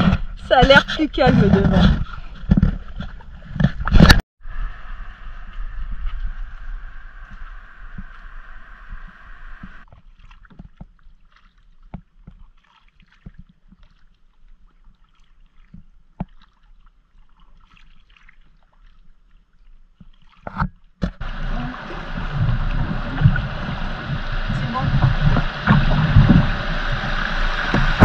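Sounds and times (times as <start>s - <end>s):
rush of air and water: 0.0s - 14.0s, 20.5s - 28.0s
kayak paddles dipping in water: 0.0s - 28.0s
paddles knocking against kayak hull: 20.5s - 28.0s.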